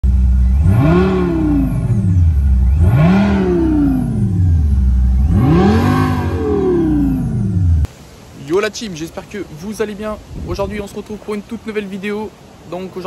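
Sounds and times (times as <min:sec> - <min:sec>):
car engine revving: 0:00.0 - 0:07.9.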